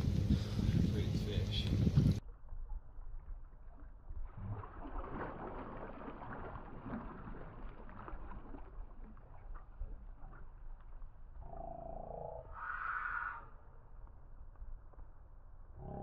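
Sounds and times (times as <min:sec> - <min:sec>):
water sloshing around boat: 0:00.0 - 0:11.4
low rumble: 0:00.0 - 0:16.0.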